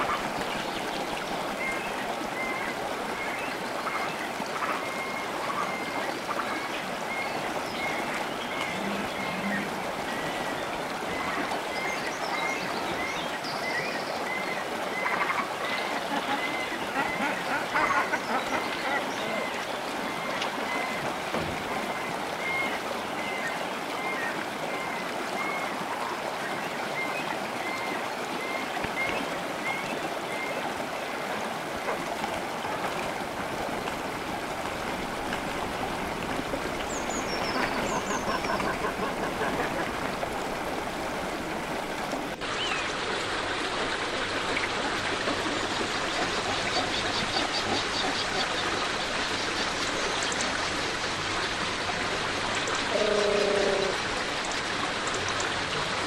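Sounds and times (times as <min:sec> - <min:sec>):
river water rushing: 0:00.0 - 0:56.0.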